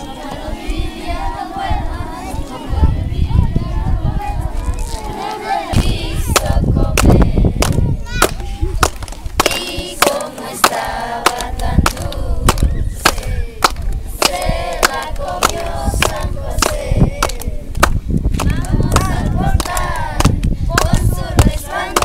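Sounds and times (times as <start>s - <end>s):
children singing: 0.0s - 7.6s, 9.4s - 13.6s, 18.4s - 22.0s.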